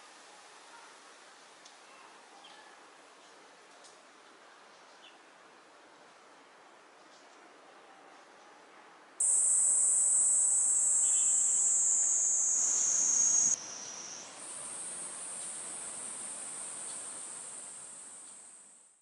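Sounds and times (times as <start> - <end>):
cicadas buzzing: 9.2 - 18.8.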